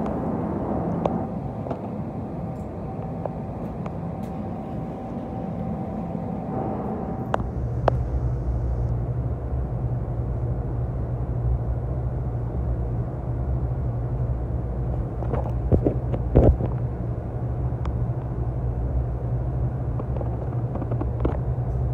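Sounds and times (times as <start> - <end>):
train rumbling on tracks: 0.0 - 21.9.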